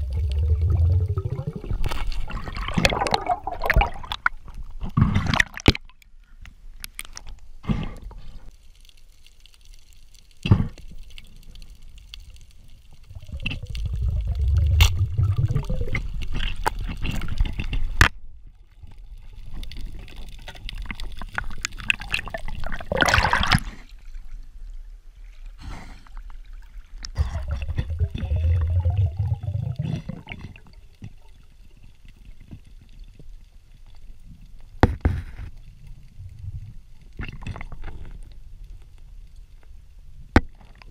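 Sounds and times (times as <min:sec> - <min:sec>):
low rumble: 0:00.0 - 0:01.9, 0:13.0 - 0:16.3
water sloshing and gurgling: 0:00.0 - 0:06.2, 0:10.7 - 0:39.0.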